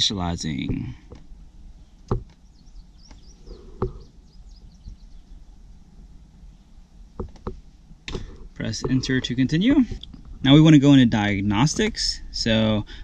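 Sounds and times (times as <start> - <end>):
faint high chirping: 1.8 - 5.6
short knocks: 2.1 - 2.4, 3.1 - 4.1.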